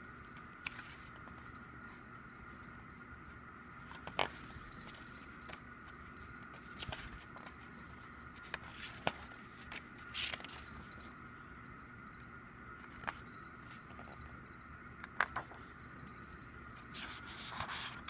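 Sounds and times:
paper pages rustling: 0:08.4 - 0:10.6, 0:17.0 - 0:18.0.

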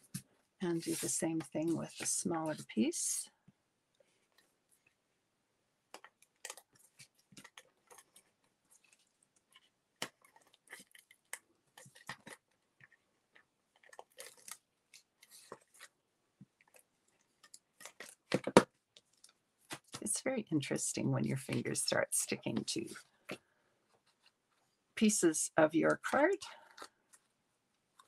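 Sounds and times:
cardstock crinkles and taps: 0:16.5 - 0:20.0.

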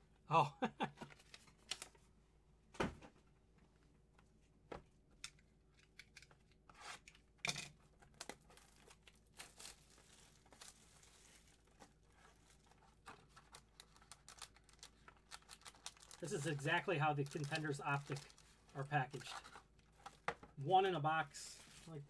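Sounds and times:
packaging tearing and crinkling: 0:08.1 - 0:20.2.

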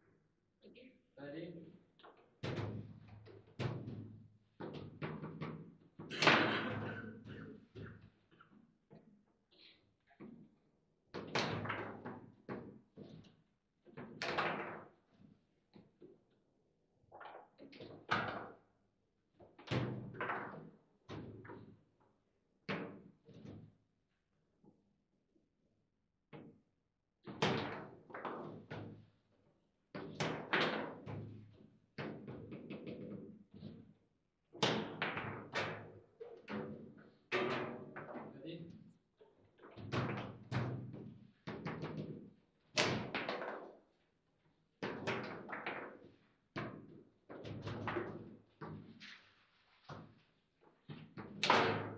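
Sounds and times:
foosball ball knocks and clacks: 0:02.1 - 0:08.1, 0:11.2 - 0:15.1, 0:17.1 - 0:18.7, 0:19.4 - 0:21.8, 0:22.7 - 0:23.7, 0:27.3 - 0:29.1, 0:30.0 - 0:33.9, 0:34.6 - 0:38.3, 0:39.6 - 0:44.0, 0:44.8 - 0:51.9.

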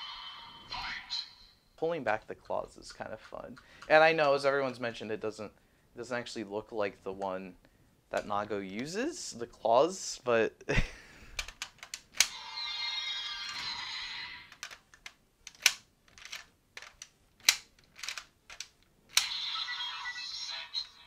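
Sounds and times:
toy electronic sound effect: 0:12.3 - 0:14.6, 0:19.2 - 0:21.0
plastic toy belt clicks: 0:14.5 - 0:19.4.

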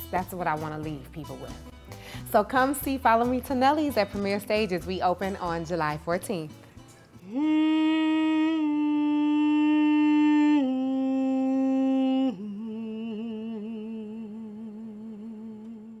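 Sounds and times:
person humming long notes: 0:07.2 - 0:16.0.

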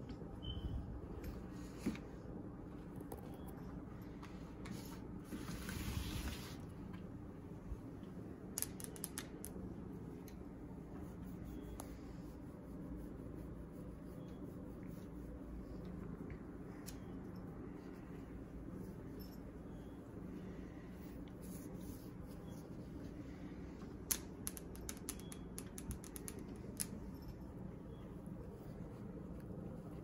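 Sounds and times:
sharp clicks: 0:08.6 - 0:09.6, 0:24.0 - 0:27.1.

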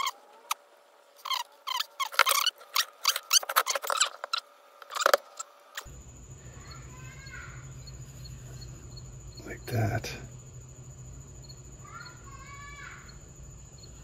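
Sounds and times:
marker squeaking on steel: 0:00.0 - 0:00.6, 0:01.2 - 0:05.9
faint high whine: 0:00.0 - 0:14.0
steady low hum: 0:00.0 - 0:14.0.

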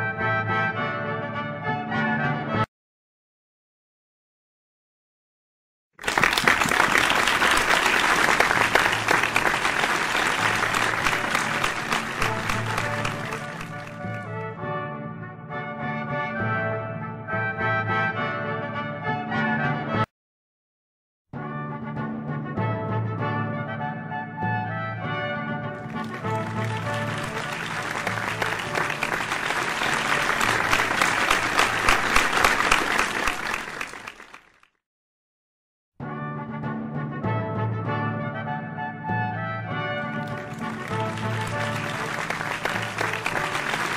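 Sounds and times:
crowd applauding: 0:06.0 - 0:14.4, 0:25.8 - 0:34.7, 0:39.9 - 0:43.9.

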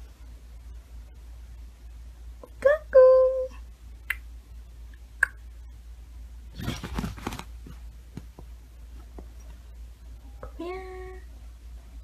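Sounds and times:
low steady hum: 0:00.0 - 0:12.0
fabric rustling: 0:06.5 - 0:09.7.

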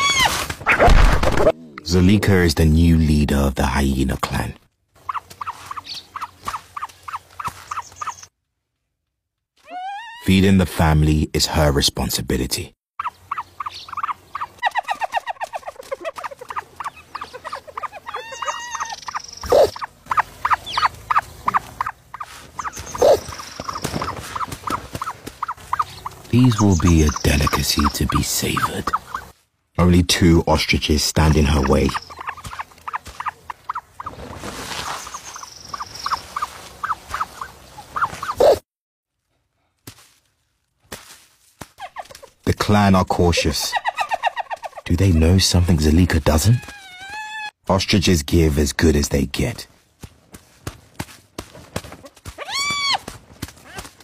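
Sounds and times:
chirping animal calls: 0:05.0 - 0:08.3, 0:09.6 - 0:10.3, 0:13.0 - 0:29.3, 0:31.3 - 0:34.2, 0:34.9 - 0:38.6, 0:46.4 - 0:47.5
ostrich chicks peeping: 0:05.0 - 0:08.3, 0:13.0 - 0:29.3, 0:31.4 - 0:34.2, 0:34.9 - 0:38.6.

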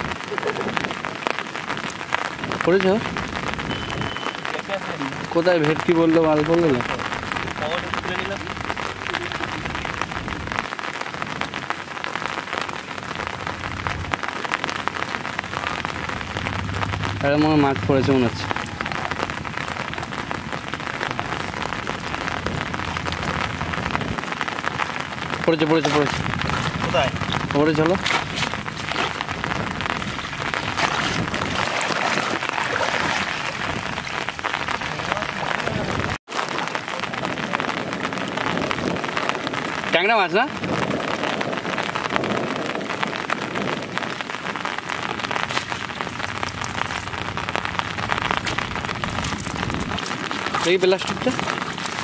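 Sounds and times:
heavy rain on water: 0:00.0 - 0:52.0
small sharp splashes: 0:28.0 - 0:34.5.

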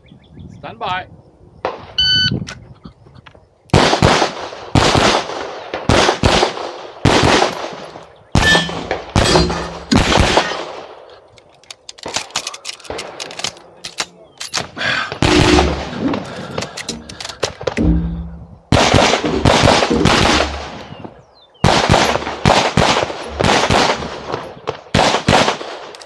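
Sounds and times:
pistol shots: 0:03.7 - 0:11.0, 0:14.0 - 0:21.0, 0:21.6 - 0:25.9
metallic clicks of pistol handling: 0:11.1 - 0:14.7, 0:16.4 - 0:17.8.

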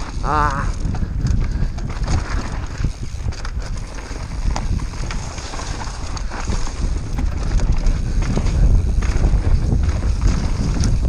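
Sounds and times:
bike rattles and knocks: 0:00.0 - 0:11.0
wind buffeting microphone: 0:00.0 - 0:11.0.

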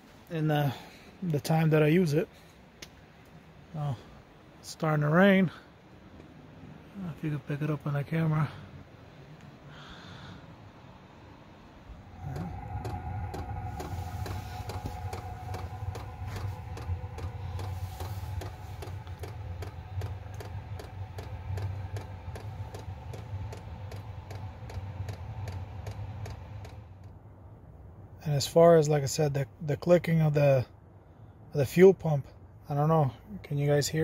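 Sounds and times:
heater blower hum and whine: 0:00.0 - 0:30.0
fuel pump ticking: 0:14.2 - 0:26.8.

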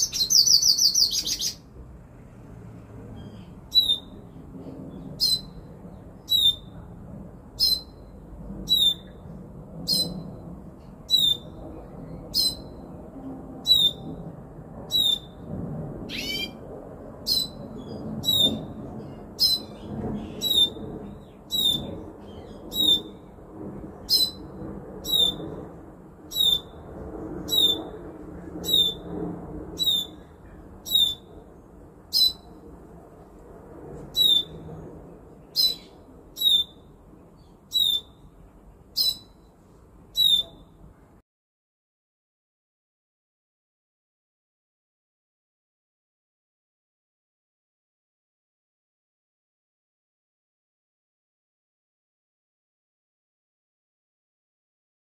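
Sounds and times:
bird sweeping call: 0:00.0 - 0:01.6, 0:03.2 - 0:04.2, 0:06.3 - 0:06.7, 0:14.9 - 0:15.3, 0:16.1 - 0:16.6, 0:21.5 - 0:21.9, 0:22.5 - 0:23.1, 0:26.3 - 0:26.7, 0:30.9 - 0:31.3, 0:32.1 - 0:32.5, 0:34.2 - 0:34.6, 0:35.6 - 0:36.8, 0:37.7 - 0:38.2, 0:39.0 - 0:39.4, 0:40.2 - 0:40.6
low rumbling background noise: 0:00.0 - 0:41.2.

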